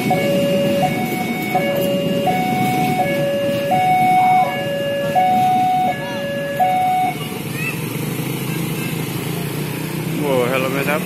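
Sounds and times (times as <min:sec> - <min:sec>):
level crossing two-tone alarm: 0:00.0 - 0:07.4
train coaches rumbling past: 0:00.0 - 0:11.0.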